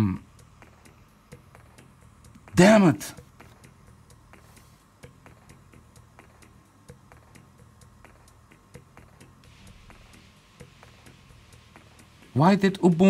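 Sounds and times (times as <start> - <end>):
faint regular ticking: 0.0 - 2.6, 3.5 - 13.0
low steady hum: 0.0 - 13.0.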